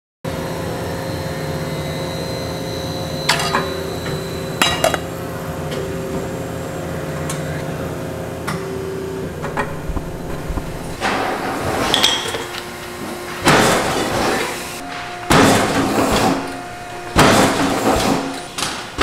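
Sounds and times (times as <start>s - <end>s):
machinery hum: 0.3s - 19.0s
metal pans knocking and clinking: 11.9s - 12.6s.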